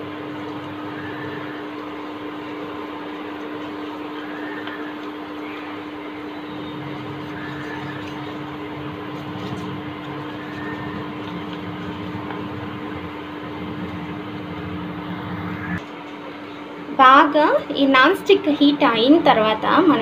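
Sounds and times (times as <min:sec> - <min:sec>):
constant background hum: 0:00.0 - 0:20.0
onion rubbing on hot pan: 0:00.8 - 0:14.9.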